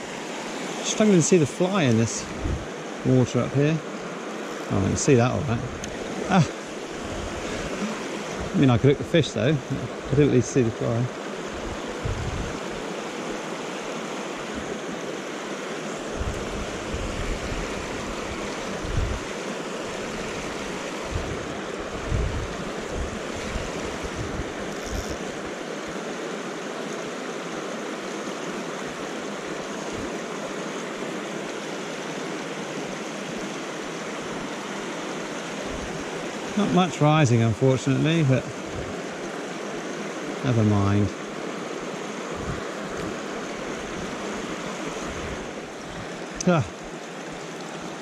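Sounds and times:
stream rushing over rocks: 0:00.0 - 0:48.0
low thumps on microphone: 0:12.0 - 0:12.6.

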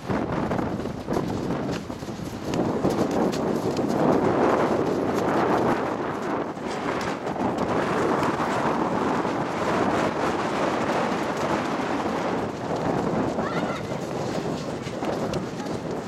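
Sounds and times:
wind buffeting microphone: 0:00.0 - 0:16.0
brief high voice: 0:13.4 - 0:14.0.

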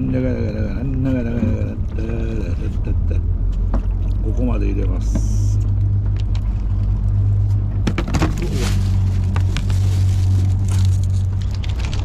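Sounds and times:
boat engine droning: 0:00.0 - 0:12.0
plastic food tray clicks and rustles: 0:10.8 - 0:12.0.

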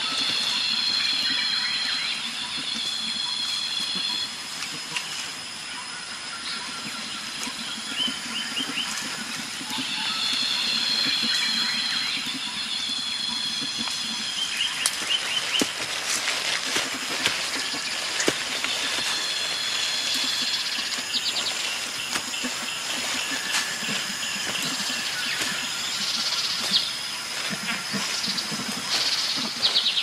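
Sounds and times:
insects droning and trilling: 0:00.0 - 0:30.0
vegetation snapping and crackling: 0:14.6 - 0:20.6.

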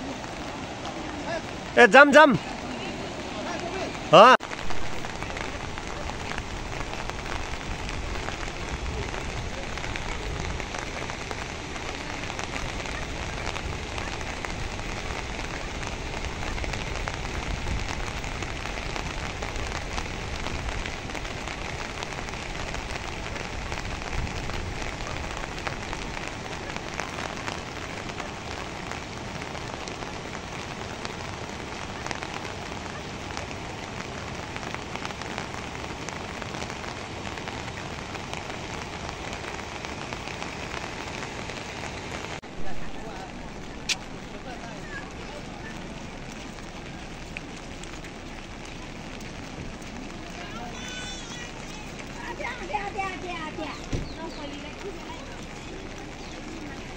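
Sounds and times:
river water rushing: 0:00.0 - 0:56.9.

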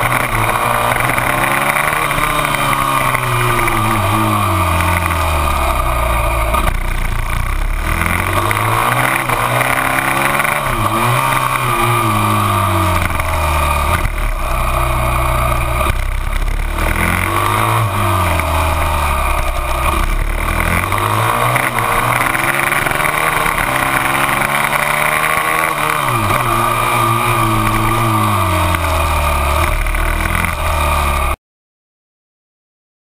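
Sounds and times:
motorcycle engine revving: 0:00.0 - 0:31.4.

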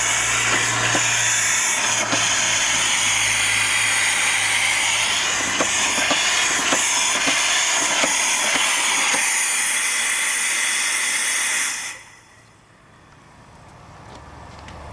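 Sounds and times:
steam engine knocking: 0:00.0 - 0:11.2
hiss of escaping steam: 0:00.0 - 0:12.4.

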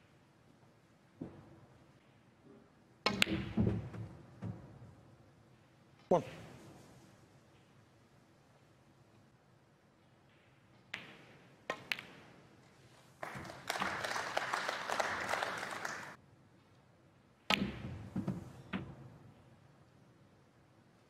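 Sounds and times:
snooker balls clicking: 0:10.0 - 0:14.3
audience applause: 0:13.2 - 0:16.2.

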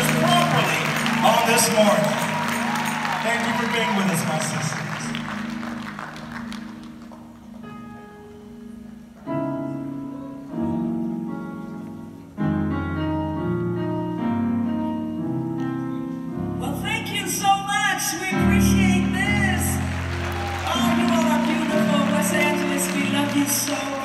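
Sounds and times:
keyboard playing held chords: 0:00.0 - 0:24.0.

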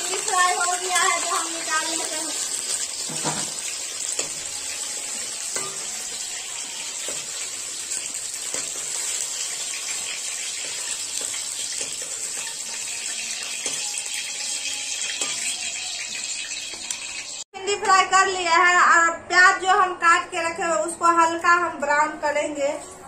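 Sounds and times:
hot oil sizzling and crackling: 0:00.0 - 0:17.5.

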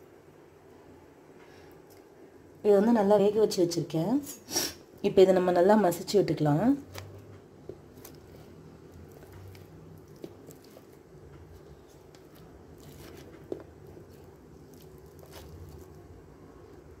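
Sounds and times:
potatoes squashing softly: 0:06.8 - 0:17.0.

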